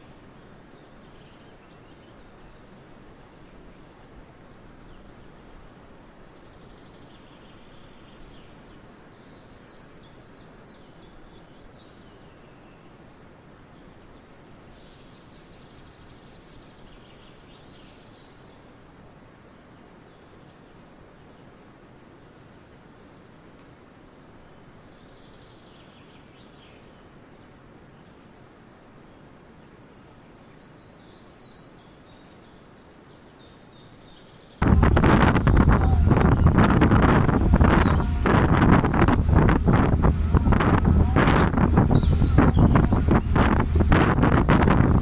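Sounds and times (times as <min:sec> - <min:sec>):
outdoor background noise: 0:00.0 - 0:45.0
faint high bird chirps: 0:33.2 - 0:45.0.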